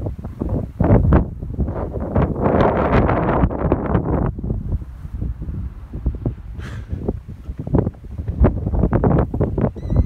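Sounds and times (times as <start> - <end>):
strong gusting wind on microphone: 0.0 - 10.0.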